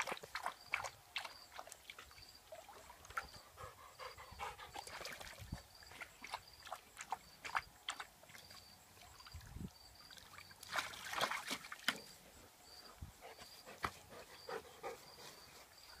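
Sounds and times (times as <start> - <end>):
dog splashing in pool water: 0.0 - 3.5, 4.5 - 12.3.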